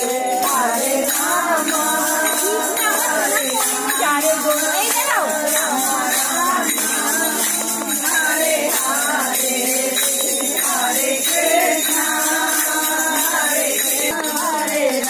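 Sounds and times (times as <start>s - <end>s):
tambourine jingle: 0.0s - 15.0s
voices singing: 0.0s - 15.0s.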